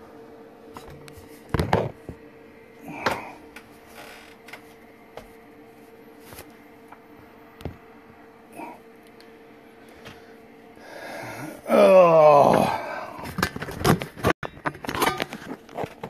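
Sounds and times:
steady hum: 0.0 - 16.0.

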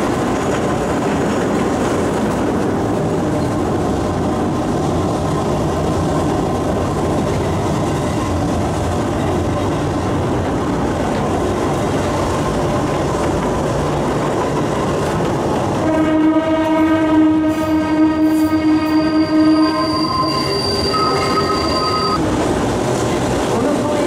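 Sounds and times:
train wheels rumbling on rail: 0.0 - 24.0
long steady pitched tone: 18.9 - 22.2.

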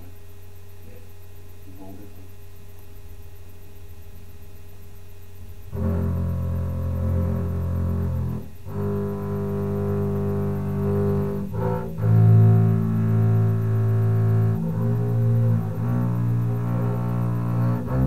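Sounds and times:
bowed double bass notes: 5.7 - 18.0.

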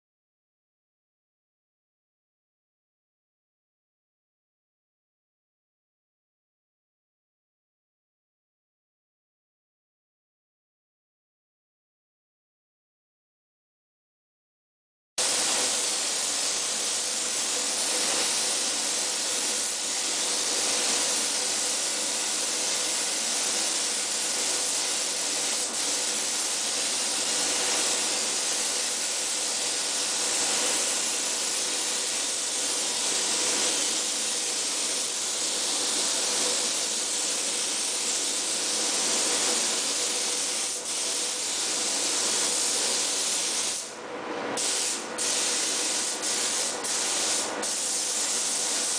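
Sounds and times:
spray gun hissing: 15.2 - 43.9, 44.6 - 48.9.

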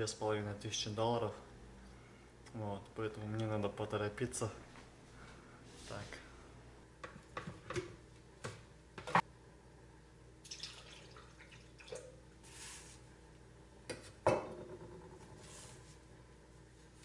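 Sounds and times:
pouring ingredients: 10.4 - 12.7.

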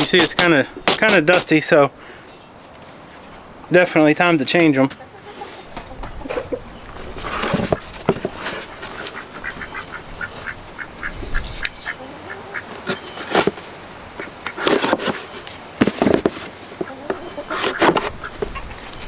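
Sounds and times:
cardboard box rustling and scraping: 6.3 - 9.1, 12.8 - 13.7, 14.5 - 19.0
ducks quacking: 8.6 - 13.0, 14.2 - 14.8, 16.8 - 18.9.

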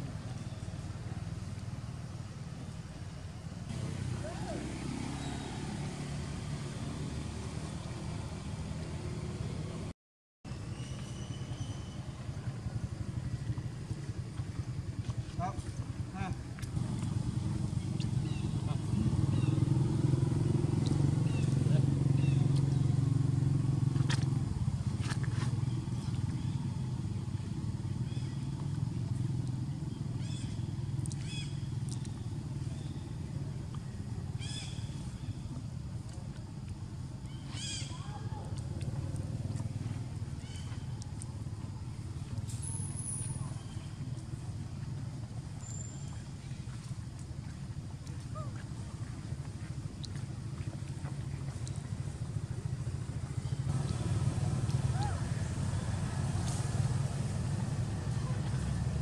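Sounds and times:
low engine hum: 0.0 - 9.9, 10.5 - 59.0
low rumbling outdoor background: 0.0 - 59.0.

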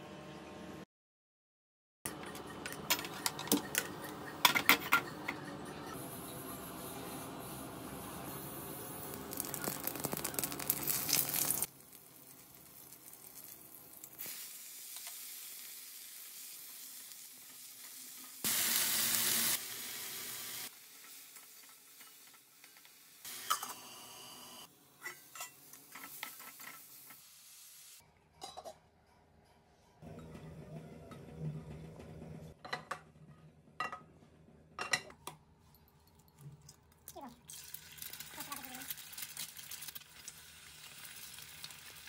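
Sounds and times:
hot oil sizzling in a wok: 6.0 - 28.0, 37.5 - 42.0.

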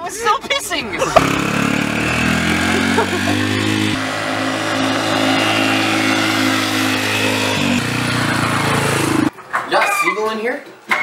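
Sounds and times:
dirt bike engine running: 0.9 - 9.3.

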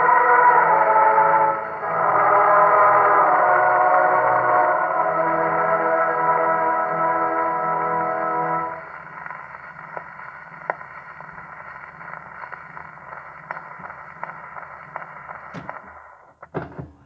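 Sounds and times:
record surface hiss and crackle: 0.0 - 17.0
needle clicking in run-out groove: 8.7 - 16.0.

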